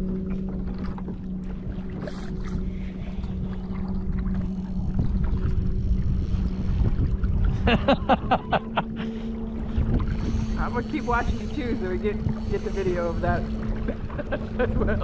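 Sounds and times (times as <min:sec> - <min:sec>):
steady low hum: 0:00.0 - 0:15.0
water around a kayak: 0:00.0 - 0:15.0
wind on microphone: 0:00.0 - 0:15.0
person speaking: 0:10.5 - 0:13.5.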